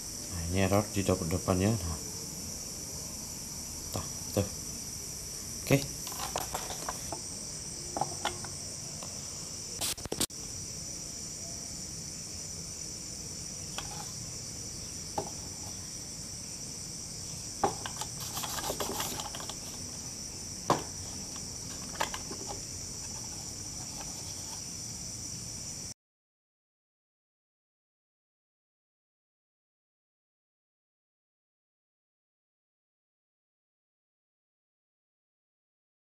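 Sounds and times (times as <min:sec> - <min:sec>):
insects chirring: 0:00.0 - 0:26.0
clicks and knocks of handled parts: 0:06.0 - 0:07.2, 0:17.6 - 0:19.8, 0:20.7 - 0:23.3.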